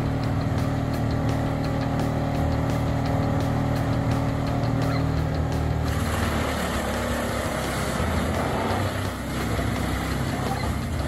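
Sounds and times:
wood chipper engine hum: 0.0s - 11.0s.

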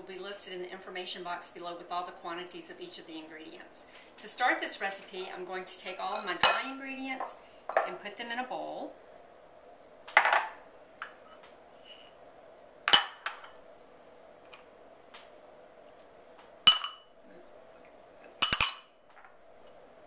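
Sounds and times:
glass dishes clinking: 12.9s - 13.6s, 16.7s - 17.1s, 18.4s - 18.9s.

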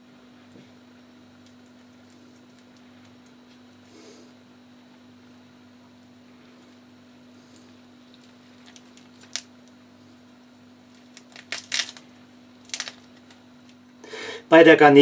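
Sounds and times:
steady low hum: 0.0s - 15.0s
knife crunching through prawn: 11.1s - 12.0s.

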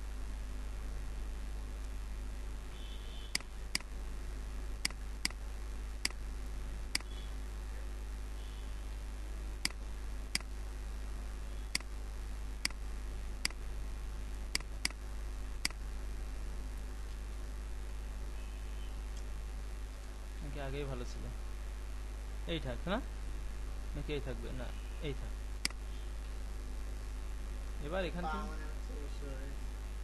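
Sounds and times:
low electrical hum: 0.0s - 30.0s
computer mouse clicking: 14.5s - 15.0s.

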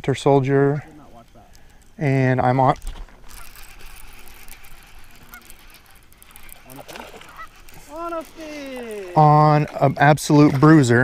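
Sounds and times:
goose honking: 3.2s - 9.0s.

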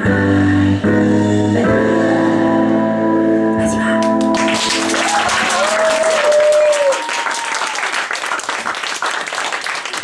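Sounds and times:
audience clapping: 4.0s - 10.0s
crowd cheering: 4.3s - 10.0s.

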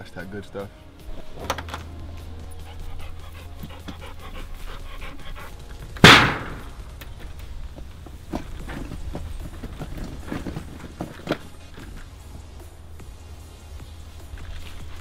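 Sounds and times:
dog panting: 2.2s - 6.7s.

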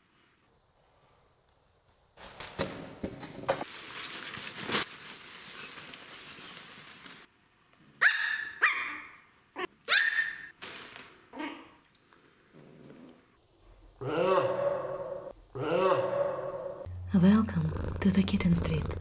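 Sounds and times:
cellophane bag crinkling: 3.7s - 7.3s, 10.6s - 11.2s
puppy yapping barks: 8.0s - 10.5s.

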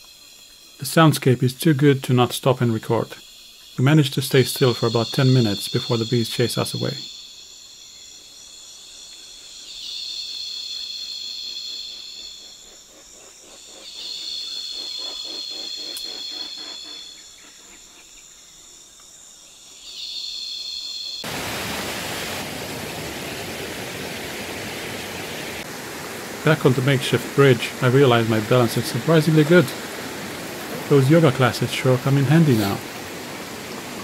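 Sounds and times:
insect chorus buzzing: 0.0s - 34.0s
flowing river: 21.2s - 34.0s.

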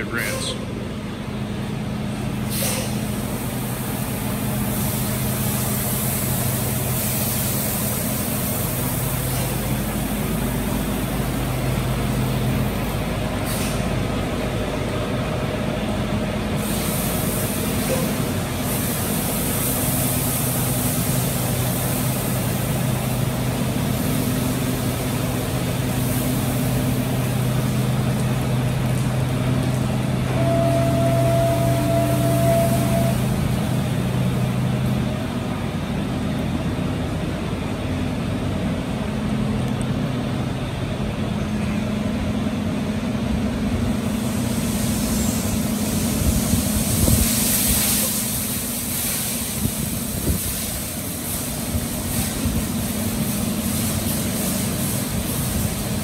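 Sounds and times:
diesel truck engine running: 0.0s - 56.0s
hiss: 2.4s - 14.1s, 16.5s - 28.6s, 44.0s - 56.0s.

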